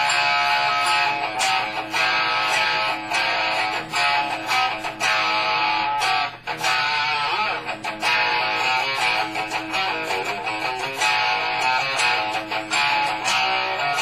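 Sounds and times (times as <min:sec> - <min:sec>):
overdriven electric guitar: 0:00.0 - 0:14.0.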